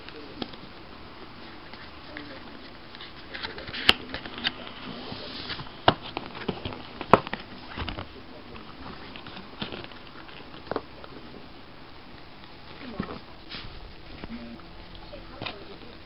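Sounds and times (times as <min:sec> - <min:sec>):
cardboard rustling: 0:00.0 - 0:11.7.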